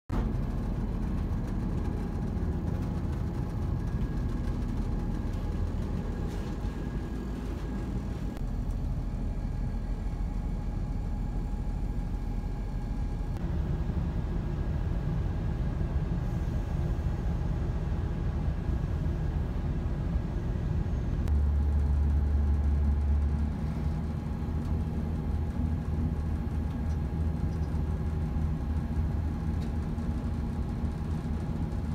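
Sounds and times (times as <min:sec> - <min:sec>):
diesel engine rumble: 0:00.1 - 0:31.9
faint steady whine: 0:00.2 - 0:31.9.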